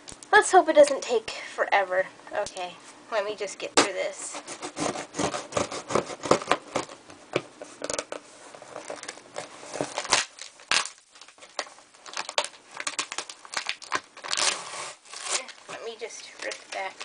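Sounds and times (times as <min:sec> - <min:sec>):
knife cutting packing tape: 0:03.8 - 0:07.0, 0:12.1 - 0:15.8.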